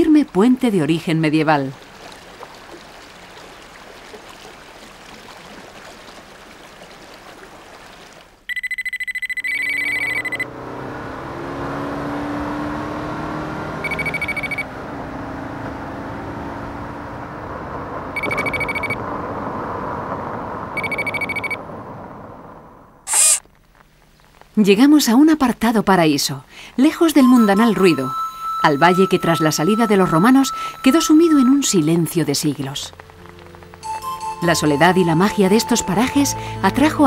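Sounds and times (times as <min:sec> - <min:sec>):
river water rushing: 0:01.7 - 0:08.4, 0:27.8 - 0:37.0
electronic trilling beep: 0:08.5 - 0:10.5, 0:13.8 - 0:14.6, 0:18.2 - 0:19.0, 0:20.8 - 0:21.6, 0:23.1 - 0:23.4, 0:27.0 - 0:32.4
soft synthesized tones: 0:26.8 - 0:37.0.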